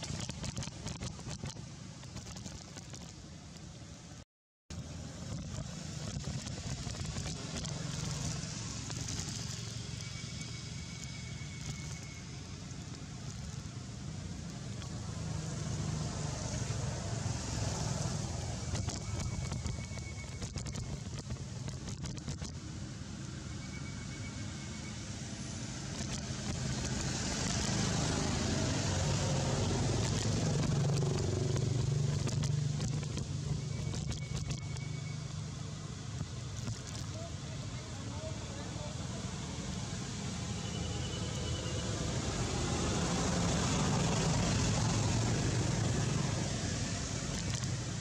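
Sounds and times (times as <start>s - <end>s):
motor vehicle passing by: 5.7s - 21.3s, 25.5s - 34.9s, 38.1s - 48.0s
vehicle passing: 14.0s - 19.6s, 26.2s - 33.0s.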